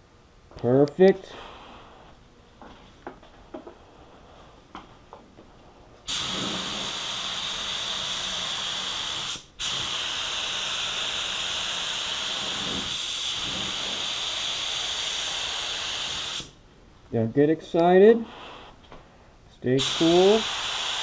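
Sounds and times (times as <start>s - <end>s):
spray gun hissing: 6.1s - 16.6s, 19.8s - 21.0s.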